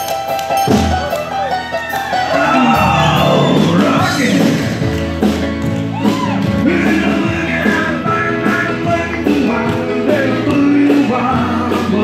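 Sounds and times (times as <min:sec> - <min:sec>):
electric guitar: 0:00.0 - 0:12.0
live rock and roll band: 0:00.0 - 0:12.0
person singing: 0:02.3 - 0:04.8.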